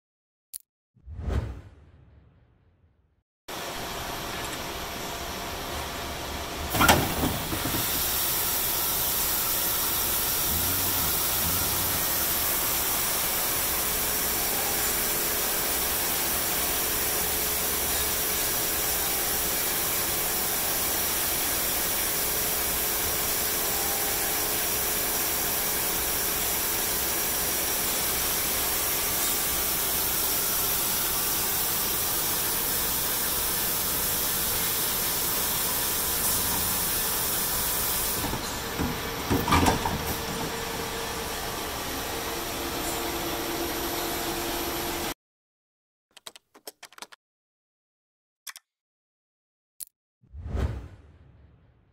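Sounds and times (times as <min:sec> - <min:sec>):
grinder hissing: 0:06.7 - 0:17.0, 0:26.8 - 0:42.0.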